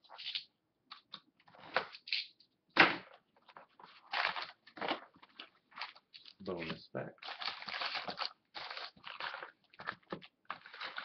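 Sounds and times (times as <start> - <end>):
plastic wrap tearing and crinkling: 3.9 - 6.4, 7.2 - 11.0.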